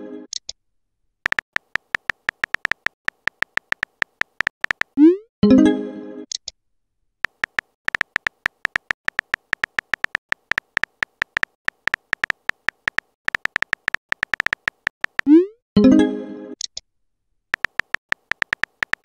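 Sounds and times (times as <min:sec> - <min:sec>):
phone keyboard key clicks: 0:01.3 - 0:05.0, 0:07.3 - 0:15.3, 0:17.6 - 0:19.0.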